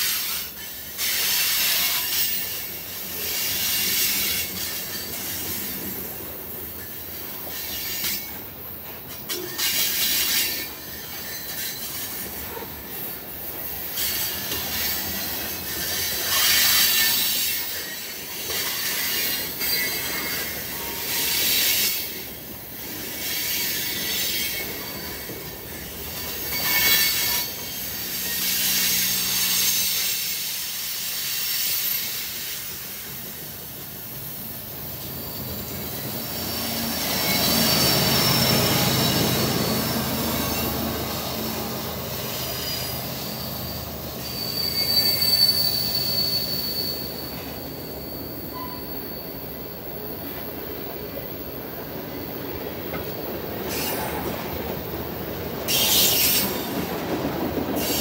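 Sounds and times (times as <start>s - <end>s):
diesel locomotive engine drone: 0.0s - 58.0s
train cars rumbling on rails: 0.0s - 58.0s
train wheels squealing: 0.0s - 58.0s.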